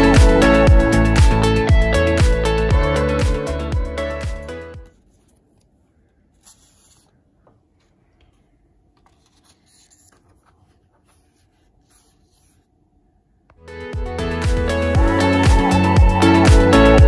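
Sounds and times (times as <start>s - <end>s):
paper rustling and scraping: 4.9s - 5.6s, 6.3s - 7.2s, 9.0s - 12.7s.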